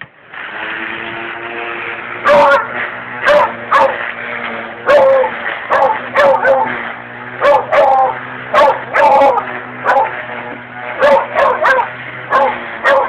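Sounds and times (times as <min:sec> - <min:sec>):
string trimmer motor hum: 0:00.0 - 0:13.0
dog barking: 0:03.2 - 0:04.0, 0:04.9 - 0:06.7, 0:07.4 - 0:08.0, 0:08.6 - 0:09.2, 0:11.0 - 0:13.0.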